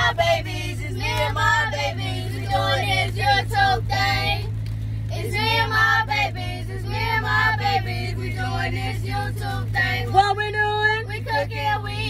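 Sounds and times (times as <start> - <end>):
children singing together: 0.0 - 4.5
steady low hum: 0.0 - 12.0.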